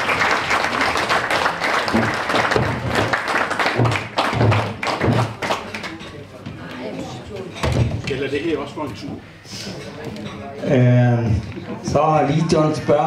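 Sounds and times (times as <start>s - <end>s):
audience clapping: 0.0s - 6.1s.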